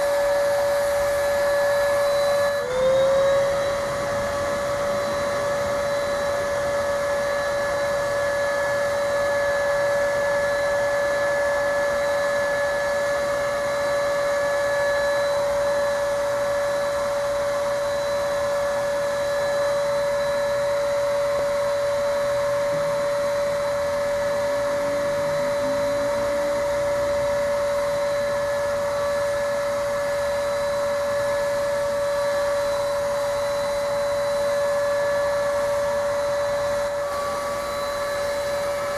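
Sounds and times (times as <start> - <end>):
electric motor high whine: 0.0 - 38.9.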